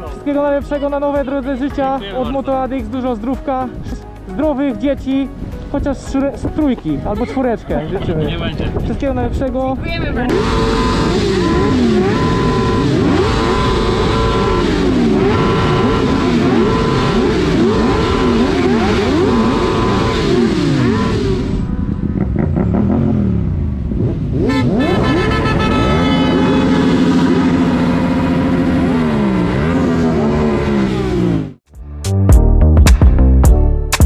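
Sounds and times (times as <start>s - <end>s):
motorcycle engines revving: 10.1s - 31.6s.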